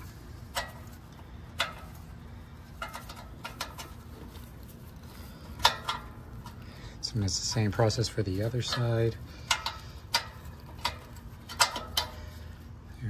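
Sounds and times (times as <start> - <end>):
metallic clicks and taps of tools: 0.5 - 2.0, 2.8 - 4.4, 5.6 - 6.6, 7.3 - 12.4.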